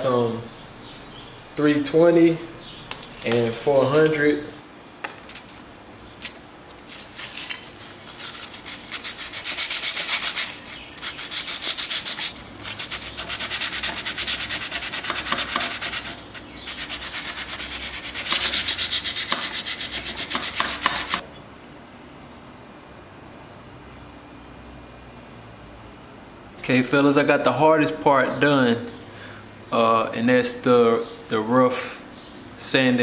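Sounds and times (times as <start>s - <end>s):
sandpaper rubbing on metal: 8.0s - 21.2s.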